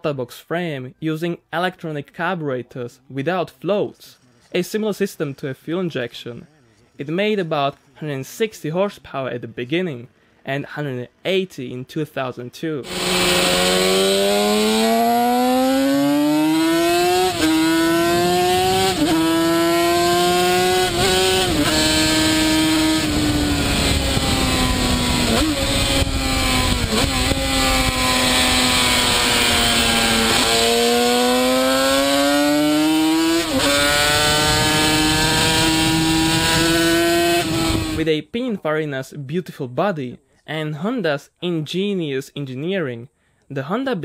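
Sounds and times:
racing motorcycle engine revving: 12.8 - 38.0.

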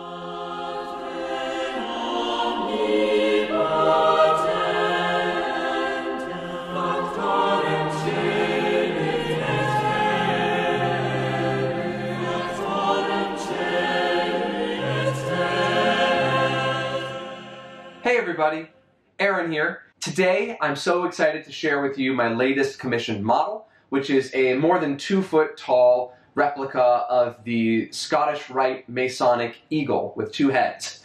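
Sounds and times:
choir singing slow choral music: 0.0 - 18.0.

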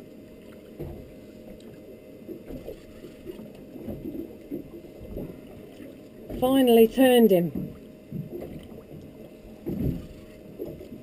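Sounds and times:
water rumbling against boat hull: 0.0 - 11.0.

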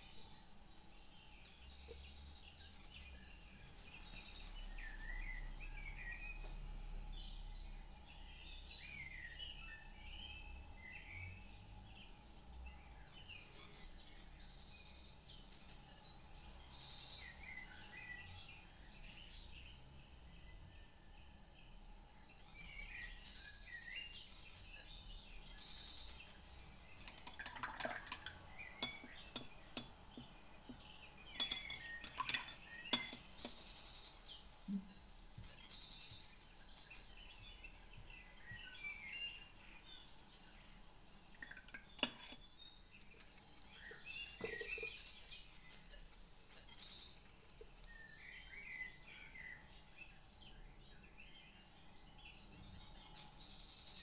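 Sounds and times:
songbirds chirping and trilling: 0.0 - 54.0
light clinks and taps: 27.0 - 33.7, 41.3 - 42.5, 43.2 - 45.1.

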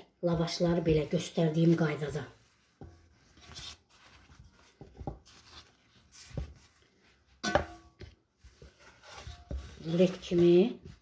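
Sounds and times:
soft rustling and hand taps: 0.8 - 7.3.

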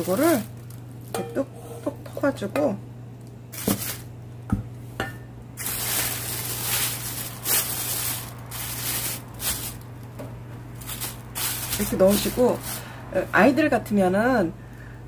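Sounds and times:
plastic film crinkling: 0.0 - 1.2, 3.5 - 4.1, 5.6 - 12.9.

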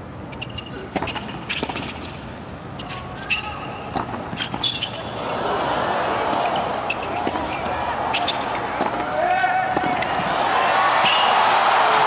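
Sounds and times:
sneakers squeaking: 0.2 - 11.5
racket hitting tennis ball: 0.8 - 2.2, 2.8 - 5.0, 6.0 - 10.3
crowd noise: 2.6 - 12.0.

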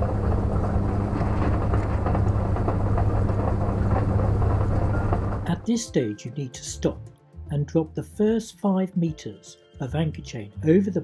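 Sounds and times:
windlass motor hum: 0.0 - 5.7.

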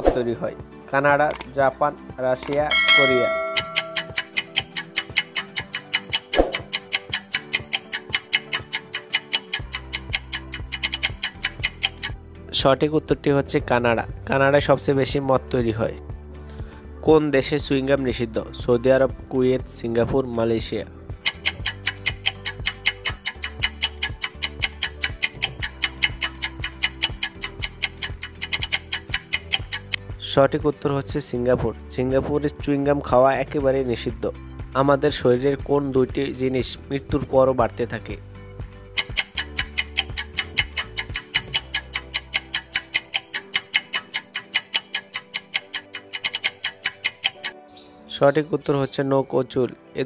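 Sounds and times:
background music with low notes: 0.0 - 50.0
fast clock ticking: 2.7 - 12.2, 21.2 - 30.0, 39.0 - 47.6.

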